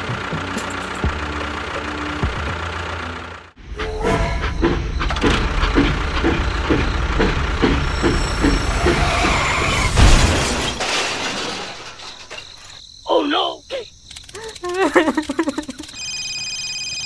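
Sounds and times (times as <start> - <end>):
engine running with regular knock: 0.0 - 3.7, 4.4 - 9.4.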